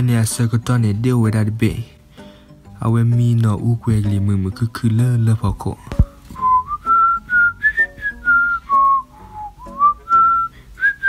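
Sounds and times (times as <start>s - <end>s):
person whistling a tune: 6.4s - 11.0s.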